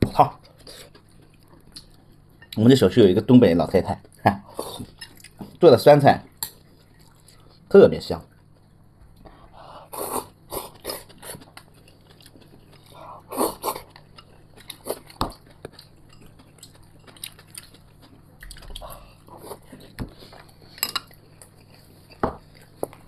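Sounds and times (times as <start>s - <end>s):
person chewing: 0.3s - 2.6s, 4.0s - 5.6s, 6.5s - 7.7s, 8.3s - 23.0s.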